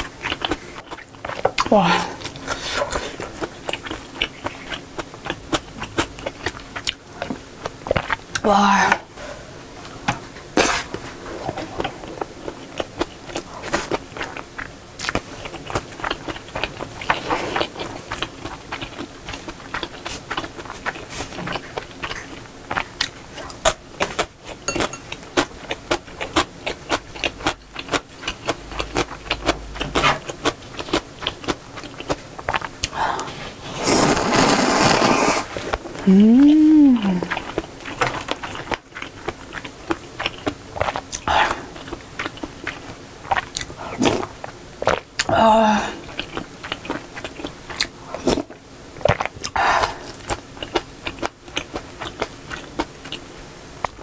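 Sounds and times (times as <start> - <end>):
person chewing food: 0.0 - 8.4, 9.3 - 54.0
slurping noodles: 33.2 - 36.2.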